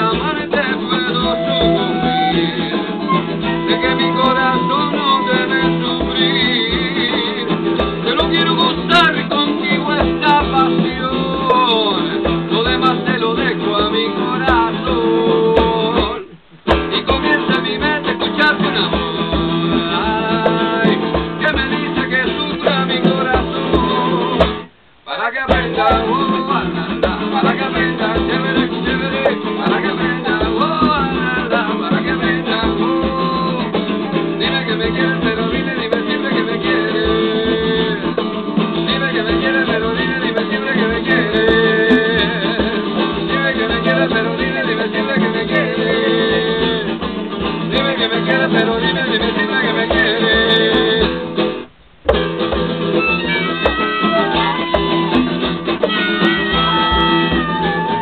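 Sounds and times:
hand drum beat: 0:00.0 - 0:58.0
strummed acoustic guitar: 0:00.0 - 0:58.0
flute melody: 0:01.0 - 0:06.6, 0:23.4 - 0:24.6, 0:25.6 - 0:26.7, 0:52.8 - 0:58.0.

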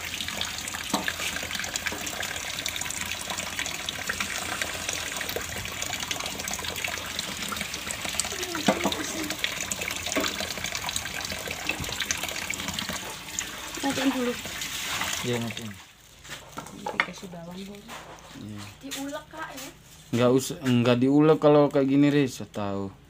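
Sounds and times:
tap water running into sink: 0:00.0 - 0:15.9
water splashing on plastic tray: 0:00.0 - 0:15.9.

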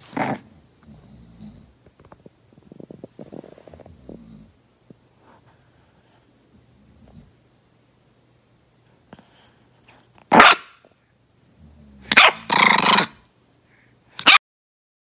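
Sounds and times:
puppy barking and growling: 0:00.0 - 0:01.6, 0:10.2 - 0:10.9, 0:11.6 - 0:13.3, 0:14.1 - 0:14.4.

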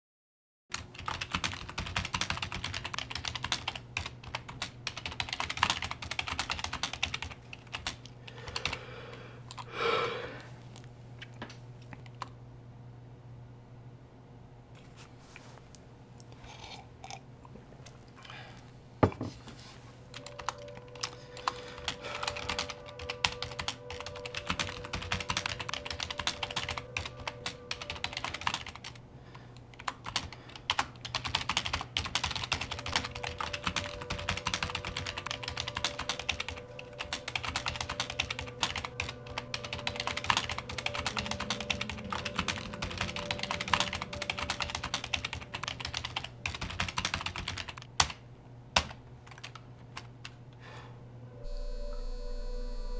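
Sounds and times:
typing on a computer keyboard: 0:00.7 - 0:08.8, 0:20.1 - 0:29.0, 0:29.7 - 0:48.2, 0:48.8 - 0:50.4
low steady hum: 0:00.7 - 0:52.9.

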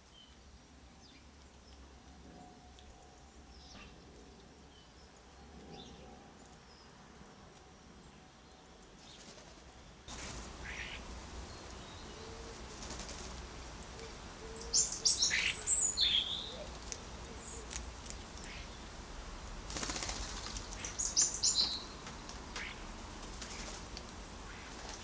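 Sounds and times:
wings fluttering: 0:09.0 - 0:11.1, 0:12.3 - 0:14.2, 0:19.6 - 0:25.0
birds chirping and whistling: 0:14.5 - 0:16.7, 0:20.8 - 0:22.0.

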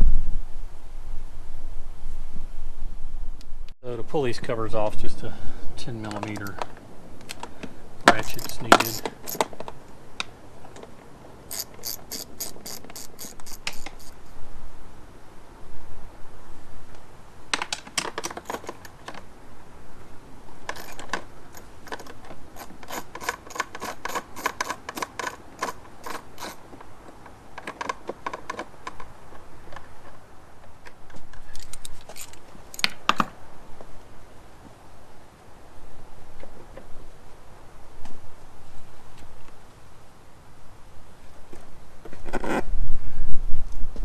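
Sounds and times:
socket ratchet clicking: 0:08.1 - 0:09.5, 0:11.5 - 0:14.2, 0:20.7 - 0:26.6.

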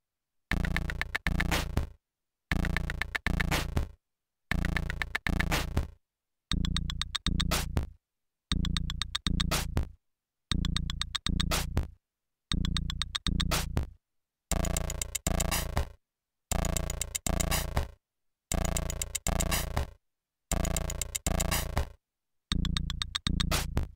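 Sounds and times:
chopped electronic beat stabs: 0:00.5 - 0:01.9, 0:02.5 - 0:03.9, 0:04.5 - 0:05.9, 0:06.5 - 0:07.9, 0:08.5 - 0:09.9, 0:10.5 - 0:11.9, 0:12.5 - 0:13.9, 0:14.5 - 0:15.9, 0:16.5 - 0:19.9, 0:20.5 - 0:21.9, 0:22.5 - 0:23.9.

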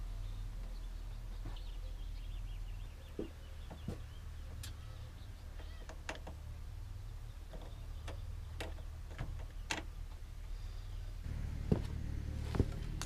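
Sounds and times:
steady low rumble: 0:06.4 - 0:13.0.

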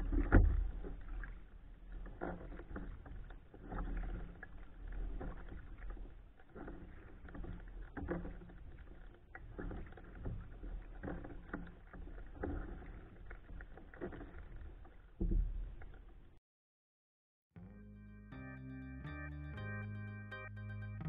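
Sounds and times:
kayak paddle splashing in water: 0:00.0 - 0:16.4.

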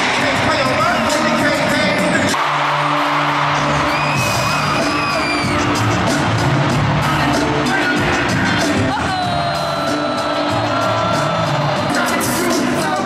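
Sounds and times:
hip-hop beat and bass: 0:00.0 - 0:13.0
crowd cheering and whooping: 0:02.2 - 0:13.0
person rapping: 0:11.8 - 0:13.0.

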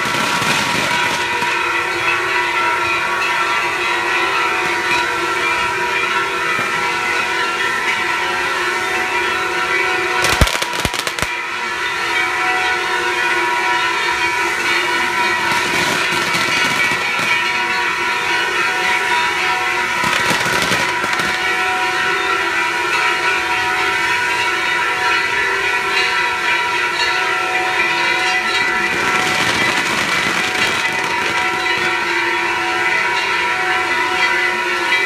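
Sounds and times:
fireworks sharp cracks: 0:00.0 - 0:01.6, 0:10.2 - 0:11.4, 0:15.4 - 0:17.5, 0:20.0 - 0:21.6, 0:28.8 - 0:32.0
fireworks crackling: 0:00.0 - 0:02.0, 0:10.2 - 0:11.4, 0:14.7 - 0:17.8, 0:19.8 - 0:21.8, 0:28.2 - 0:32.6
fireworks hissing roar: 0:00.0 - 0:03.0, 0:10.2 - 0:11.4, 0:13.6 - 0:33.3.

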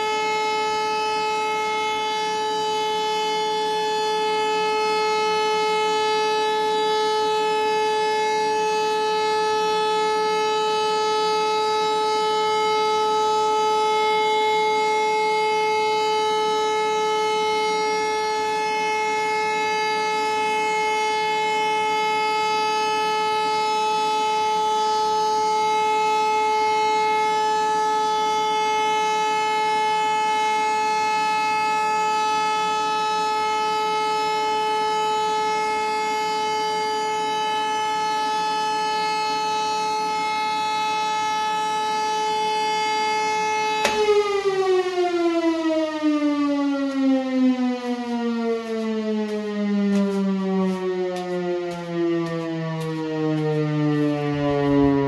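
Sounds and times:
siren steady tone: 0:00.0 - 0:55.0.

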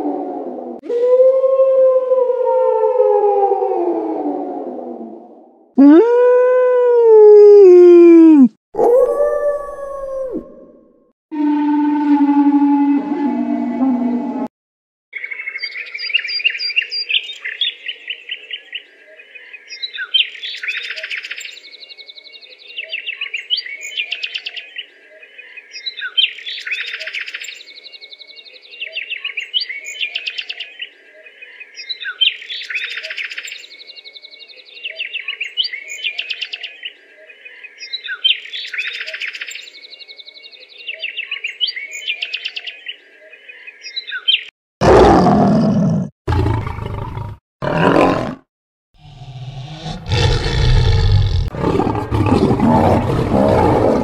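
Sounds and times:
songbird chirping and trilling: 0:15.2 - 0:44.5.

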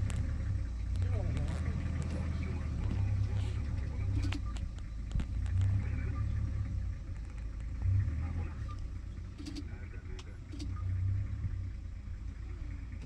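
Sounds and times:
vehicle engine idling: 0:00.0 - 0:13.0
faint clicks: 0:07.0 - 0:10.9.

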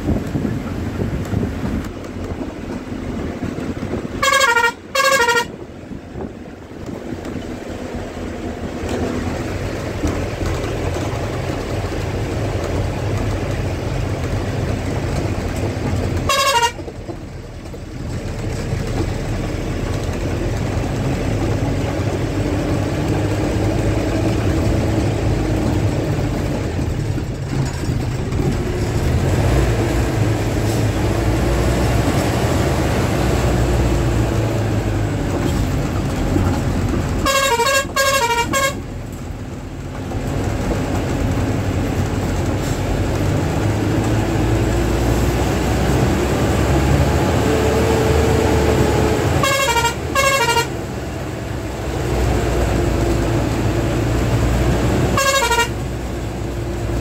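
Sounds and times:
vehicle engine and road noise: 0:00.0 - 0:57.0
car horn tooting: 0:04.1 - 0:05.6, 0:16.2 - 0:16.9, 0:37.2 - 0:38.8, 0:49.3 - 0:50.8, 0:55.1 - 0:55.8.

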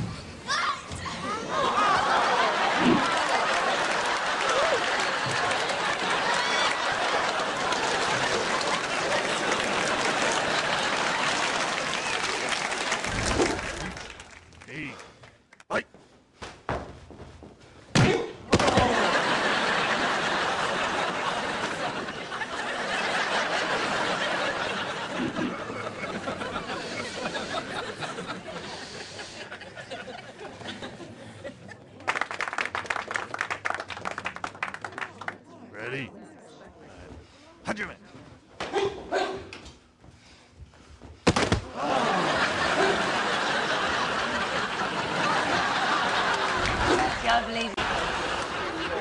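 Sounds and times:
many people laughing: 0:01.0 - 0:14.0, 0:18.6 - 0:32.2, 0:41.7 - 0:49.0
sharp impact smack: 0:41.2 - 0:41.7.

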